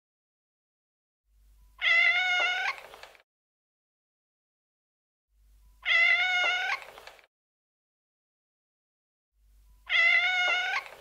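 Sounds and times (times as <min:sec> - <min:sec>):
cat meowing: 0:01.8 - 0:03.0, 0:05.8 - 0:07.0, 0:09.9 - 0:11.0.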